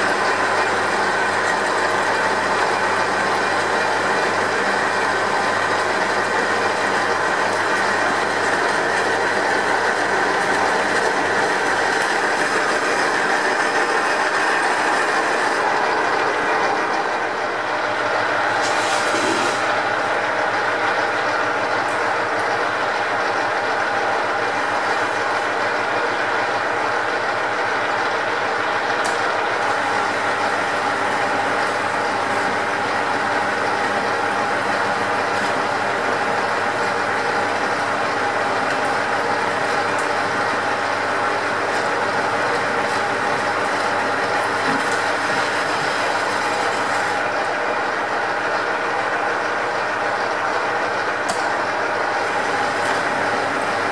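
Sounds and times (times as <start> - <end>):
metal lathe whining: 0.0 - 53.9.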